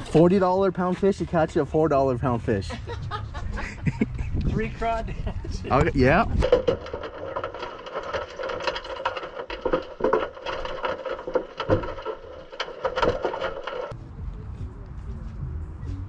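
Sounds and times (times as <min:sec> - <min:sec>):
sharp clicks and knocks: 0:05.7 - 0:14.0.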